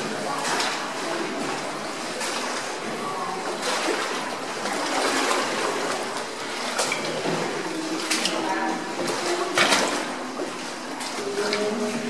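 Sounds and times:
oars dipping into water: 0:00.0 - 0:12.0
water splashing and trickling: 0:00.0 - 0:12.0.

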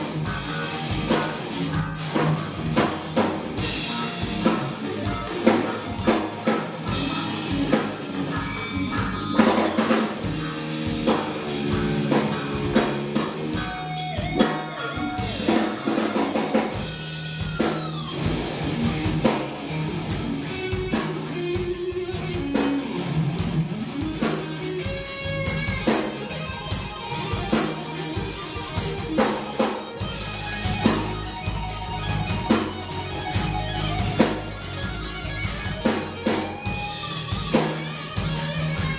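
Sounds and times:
drum kit with cymbals: 0:00.0 - 0:38.9
electric bass: 0:00.0 - 0:38.9
electric guitar lead lines: 0:00.0 - 0:38.9.

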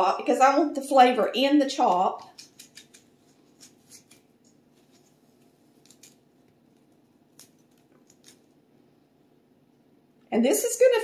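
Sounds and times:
knife slicing through onion: 0:02.2 - 0:06.3.

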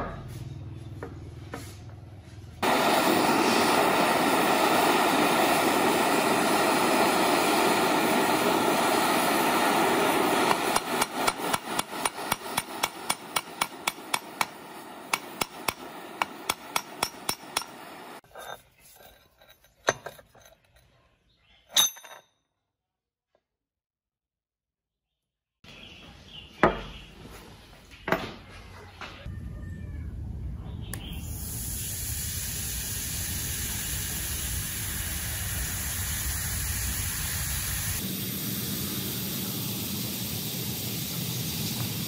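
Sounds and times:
gas torch hissing: 0:02.6 - 0:18.2, 0:31.0 - 0:42.0
hammer tapping metal: 0:10.6 - 0:18.0
sharp metal clanks: 0:21.7 - 0:22.3.

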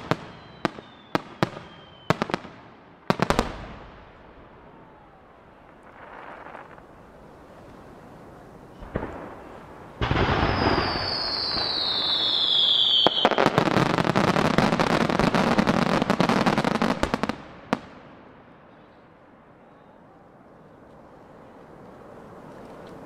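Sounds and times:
firework whistle falling: 0:00.0 - 0:02.3, 0:10.0 - 0:13.7
firework blasts: 0:00.0 - 0:19.2.

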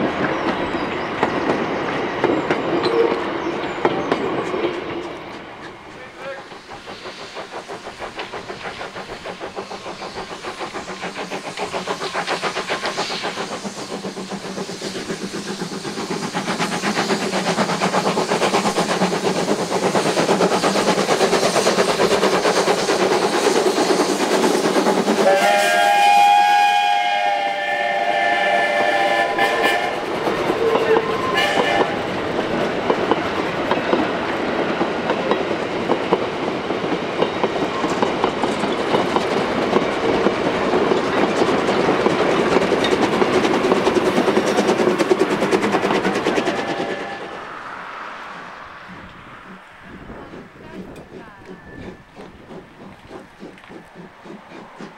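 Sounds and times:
steam locomotive running: 0:00.0 - 0:54.9
steam whistle: 0:25.2 - 0:30.0, 0:30.6 - 0:32.0, 0:46.4 - 0:47.6
wheels clicking over rail joints: 0:30.2 - 0:46.2, 0:48.9 - 0:54.9.

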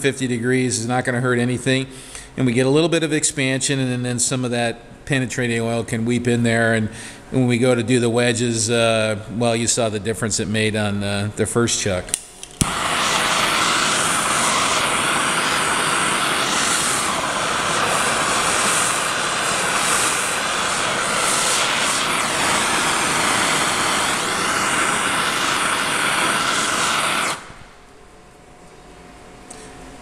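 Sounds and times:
gas torch hissing: 0:12.1 - 0:27.9.

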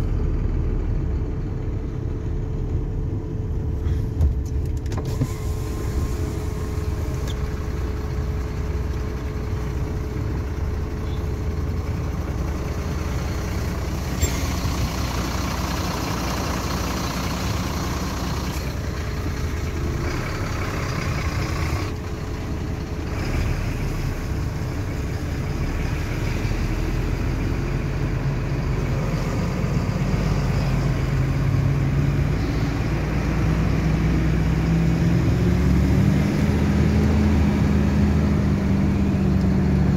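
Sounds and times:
diesel truck engine running: 0:00.0 - 0:39.9.

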